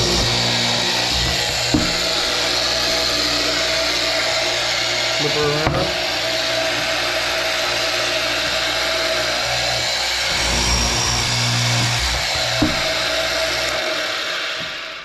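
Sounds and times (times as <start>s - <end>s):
drill bits boring into panel: 0.0s - 14.7s
boring machine running: 0.0s - 15.0s
knock: 1.7s - 2.1s, 5.6s - 6.0s, 12.6s - 12.9s.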